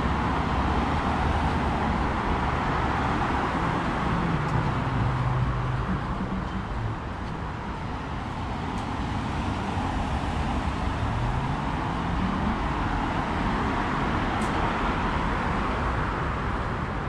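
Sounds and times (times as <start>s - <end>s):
road traffic noise: 0.0s - 17.0s
vehicle engine speeding up: 1.8s - 7.6s.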